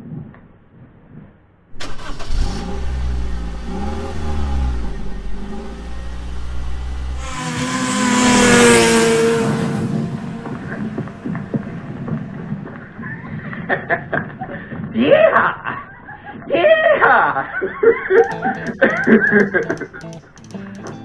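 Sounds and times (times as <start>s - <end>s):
vehicle engine running: 1.8s - 13.7s, 18.2s - 21.0s.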